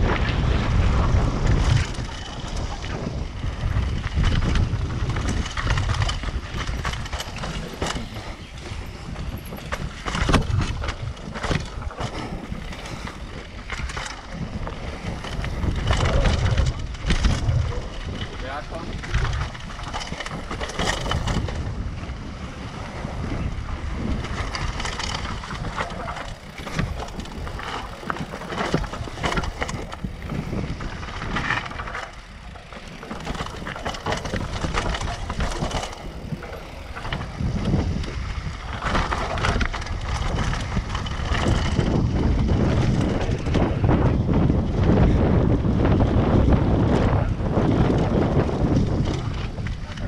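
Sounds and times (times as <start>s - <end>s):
bike rattling: 0.0s - 50.0s
wind buffeting microphone: 0.0s - 50.0s
tyres crunching over gravel: 24.1s - 43.5s.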